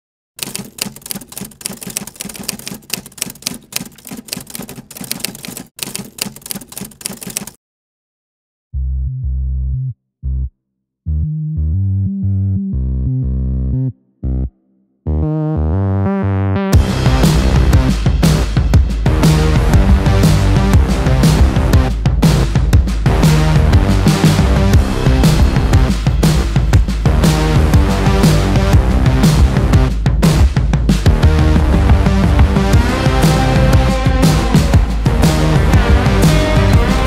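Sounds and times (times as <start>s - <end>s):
rapid irregular clicking: 0.4s - 7.6s
music with deep held notes: 11.1s - 14.5s, 15.1s - 37.0s.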